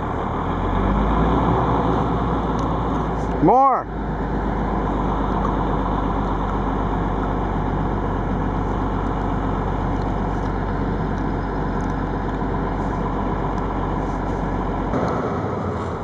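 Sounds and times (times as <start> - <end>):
diesel bus engine running: 0.0 - 16.0.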